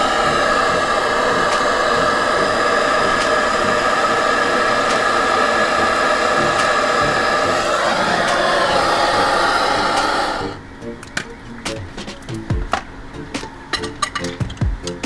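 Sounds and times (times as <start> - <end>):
propane torch hissing: 0.0 - 10.6.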